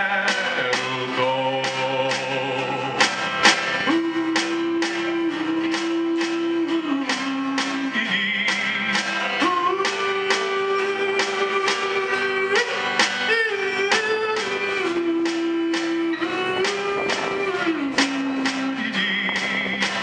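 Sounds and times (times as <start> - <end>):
acoustic guitars strumming: 0.0 - 20.0
man singing wordless notes: 0.0 - 20.0
upright bass: 0.0 - 20.0
fiddle: 2.1 - 20.0.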